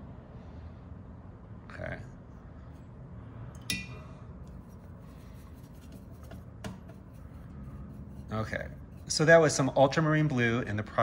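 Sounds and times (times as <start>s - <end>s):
low steady hum: 0.0s - 11.0s
faint brush rubbing: 4.5s - 10.4s
painting tool tap: 5.9s - 7.0s.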